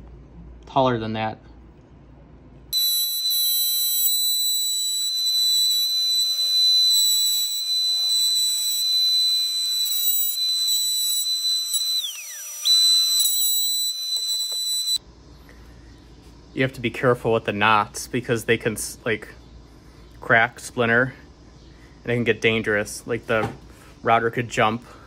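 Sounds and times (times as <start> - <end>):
router high whine: 2.8 - 15.0.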